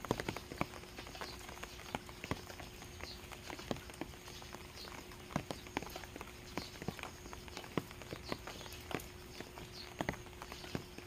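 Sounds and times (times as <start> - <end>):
light rain hiss: 0.0 - 11.0
rainwater dripping on wet ground: 0.0 - 11.0.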